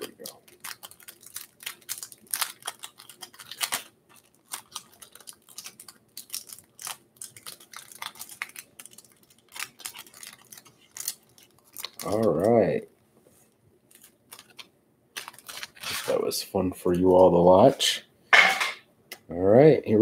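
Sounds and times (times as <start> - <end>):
plastic wrapping crinkling: 0.0 - 12.8, 13.4 - 16.4.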